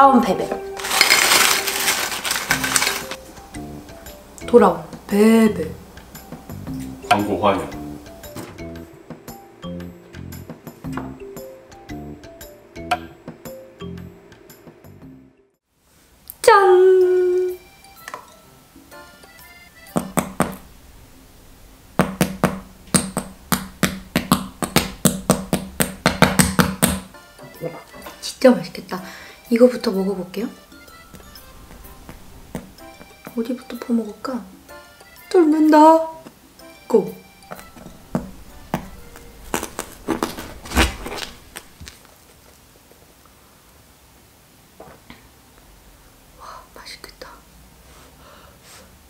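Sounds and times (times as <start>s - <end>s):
spoon crackling through crust: 0.8s - 3.2s, 38.0s - 42.5s
wooden spoon tapping crust: 19.9s - 20.6s, 22.0s - 27.1s.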